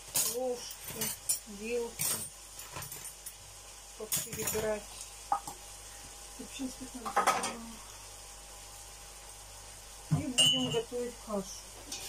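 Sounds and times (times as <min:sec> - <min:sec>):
carrots sizzling in a pan: 0:00.0 - 0:12.0
glasses and cutlery clinking: 0:10.4 - 0:10.9.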